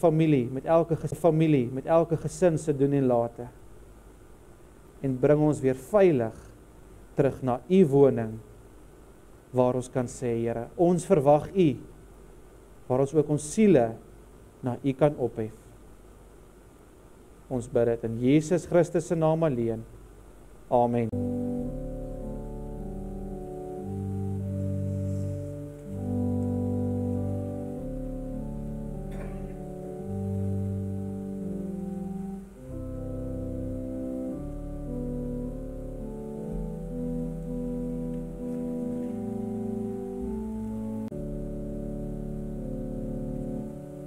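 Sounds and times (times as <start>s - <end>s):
organ playing slow chords: 20.9s - 44.0s.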